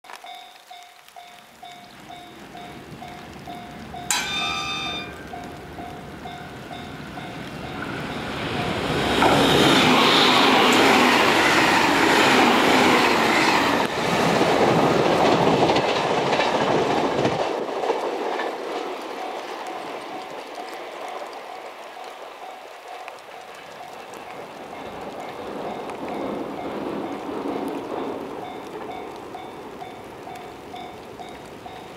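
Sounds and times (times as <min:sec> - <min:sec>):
level-crossing warning bell: 0:00.1 - 0:09.7, 0:19.2 - 0:31.9
train rushing past: 0:02.2 - 0:21.0.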